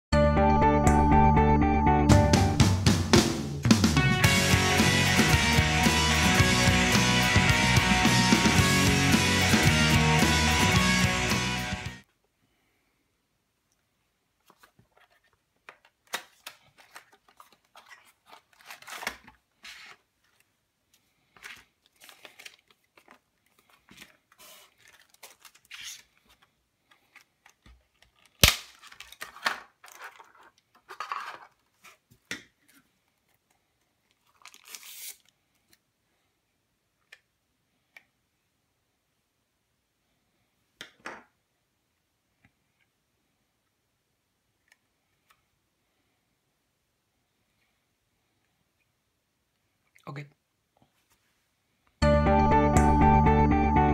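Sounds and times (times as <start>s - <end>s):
cardboard and plastic rustling: 14.4s - 35.8s.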